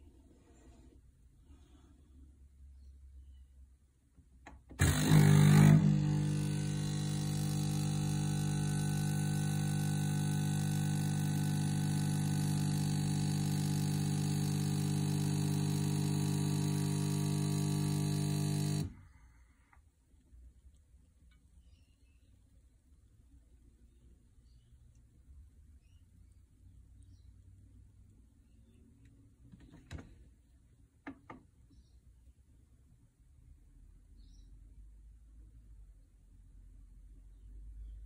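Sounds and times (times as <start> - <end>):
coffee machine buzzing: 4.8 - 19.1
coffee pouring into mug: 5.1 - 18.9.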